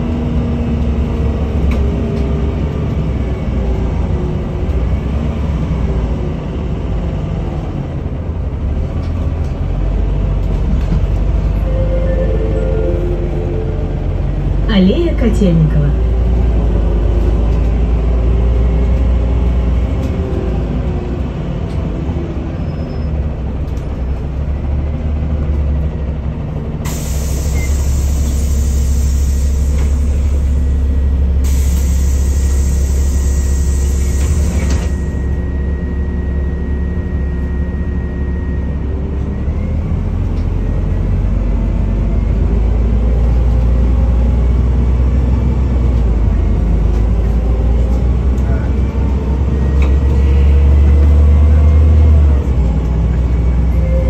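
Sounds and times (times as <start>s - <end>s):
bus engine and road rumble: 0.0s - 54.0s
loud air hiss: 26.9s - 30.4s, 31.4s - 35.1s.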